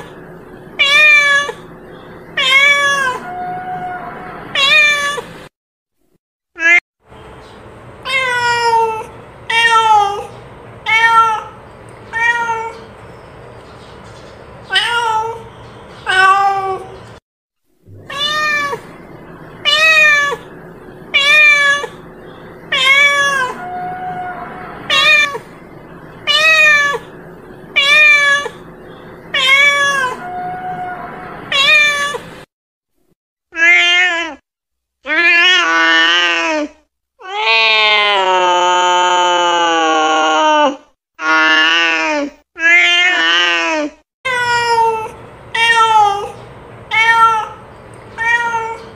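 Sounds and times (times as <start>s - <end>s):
cat meowing: 0.8s - 1.6s, 2.4s - 5.3s, 8.1s - 10.3s, 10.9s - 12.9s, 14.7s - 17.0s, 17.9s - 19.0s, 19.6s - 20.5s, 21.1s - 22.0s, 22.7s - 25.5s, 26.2s - 27.1s, 27.8s - 28.6s, 29.3s - 32.3s, 44.3s - 47.6s, 48.2s - 48.9s.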